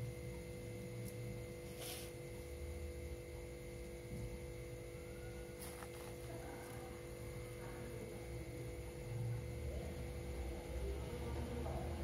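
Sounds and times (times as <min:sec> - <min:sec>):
steady electrical hum: 0:00.0 - 0:12.0
bubble wrap crinkling: 0:05.5 - 0:06.9.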